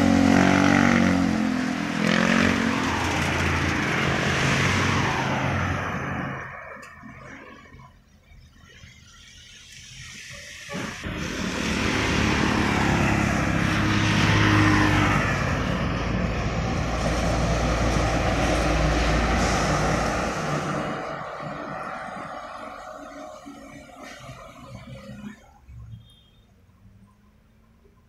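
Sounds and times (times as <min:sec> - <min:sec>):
motorcycle passing: 0:00.0 - 0:06.4, 0:11.1 - 0:23.6
truck diesel engine passing: 0:00.0 - 0:07.8, 0:10.7 - 0:25.4.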